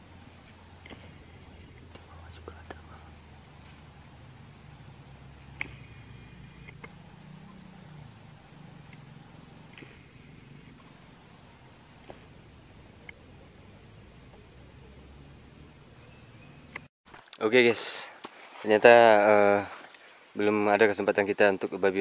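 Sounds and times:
insect high-pitched trills: 0.0s - 16.9s
faint sharp clicks: 5.6s - 5.8s, 6.6s - 7.0s.

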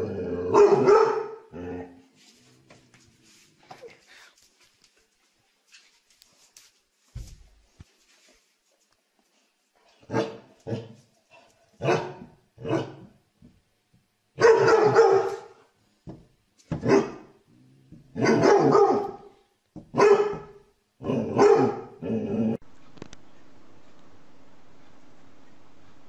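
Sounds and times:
dog barking: 0.5s - 1.5s, 10.1s - 10.9s, 11.8s - 13.0s, 14.4s - 15.7s, 16.8s - 17.4s, 18.1s - 22.0s.

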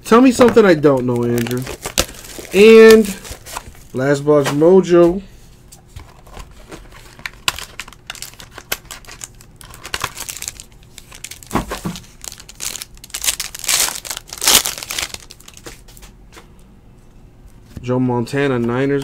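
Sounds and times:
foil wrapper crinkling and tearing: 0.9s - 3.8s, 6.8s - 16.1s.

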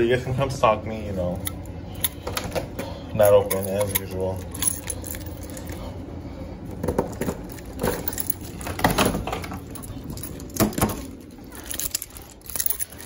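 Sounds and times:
keys jingling: 3.2s - 5.9s, 7.4s - 13.0s.

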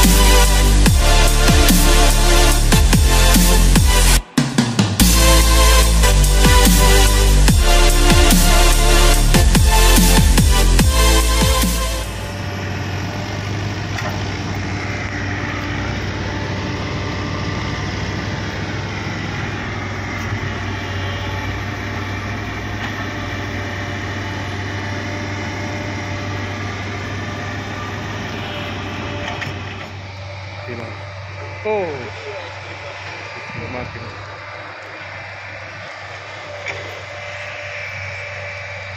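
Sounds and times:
heavy diesel engine running: 0.0s - 38.9s
faint high whine: 12.0s - 38.9s.

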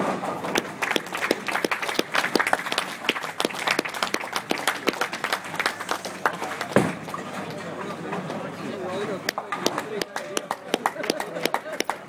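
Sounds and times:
group clapping: 0.4s - 7.1s, 9.2s - 12.0s.

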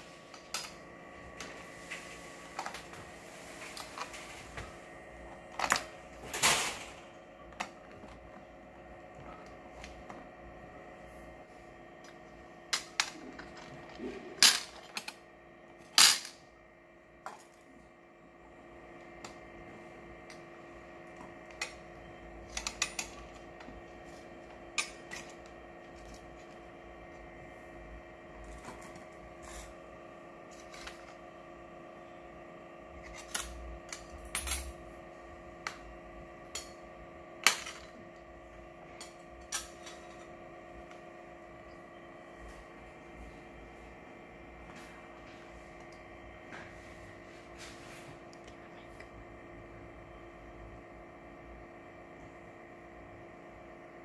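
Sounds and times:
steady hum: 0.0s - 54.0s.

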